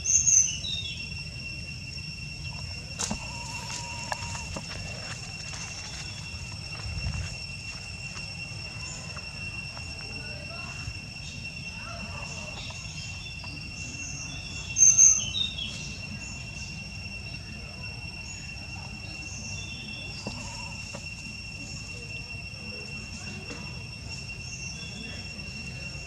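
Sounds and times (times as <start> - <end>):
bird-like chirps: 0.0 - 1.4, 8.4 - 22.0
high-pitched insect drone: 0.0 - 26.0
loud high chirp: 0.0 - 26.0.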